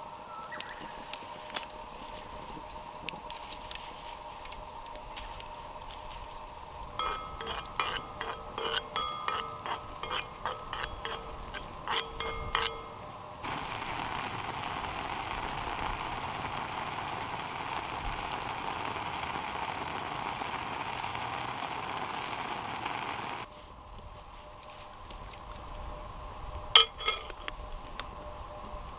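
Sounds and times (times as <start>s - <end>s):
fruit sizzling and bubbling in skillet: 0.0s - 23.5s, 25.0s - 28.9s
light metallic clinks and knocks: 7.0s - 13.0s, 26.8s - 27.5s.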